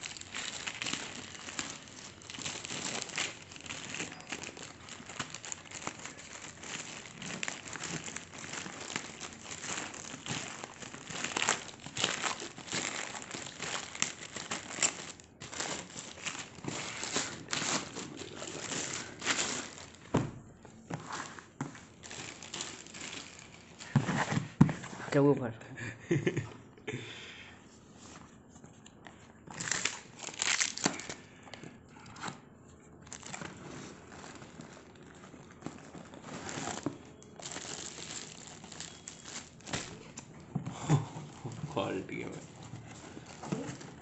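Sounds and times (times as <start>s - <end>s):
plastic bag crinkling: 0.0s - 20.1s, 21.5s - 24.0s, 29.5s - 31.3s, 33.0s - 40.2s, 41.2s - 44.0s.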